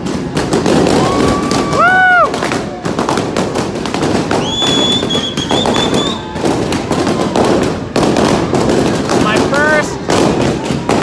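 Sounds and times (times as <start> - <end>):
balloons popping: 0.0 - 11.0
crowd noise: 0.0 - 11.0
shrill whistle: 4.4 - 6.3.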